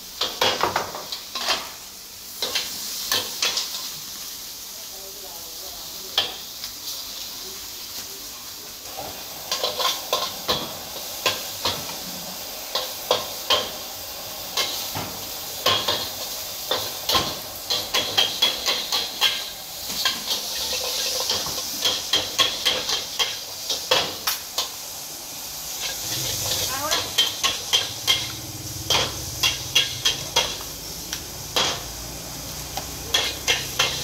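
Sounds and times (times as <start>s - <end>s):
noodles sizzling in a wok: 0.0s - 34.0s
metal utensils clanking on pan: 0.2s - 1.8s, 2.4s - 3.9s, 6.1s - 6.5s, 8.9s - 12.0s, 12.6s - 13.8s, 14.5s - 24.8s, 25.7s - 32.0s, 32.7s - 34.0s.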